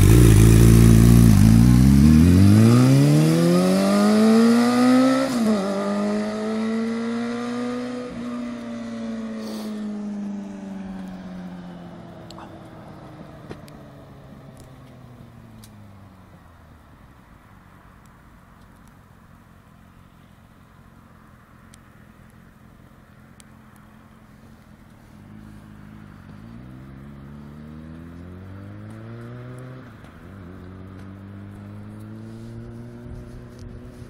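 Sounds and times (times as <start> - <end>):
motorcycle accelerating: 0.0 - 16.3, 23.8 - 34.0.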